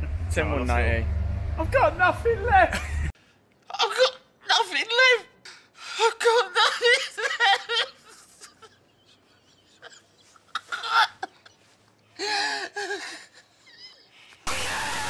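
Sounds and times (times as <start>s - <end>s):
man sobbing and wailing: 3.7s - 14.3s.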